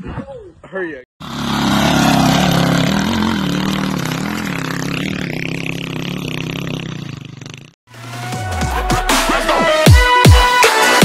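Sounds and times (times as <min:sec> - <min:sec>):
dirt bike engine running hard: 0:01.2 - 0:08.2.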